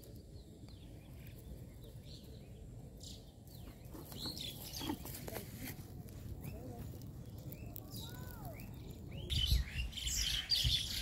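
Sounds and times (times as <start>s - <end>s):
birds chirping: 0.0s - 11.0s
steady low rumble: 5.2s - 11.0s.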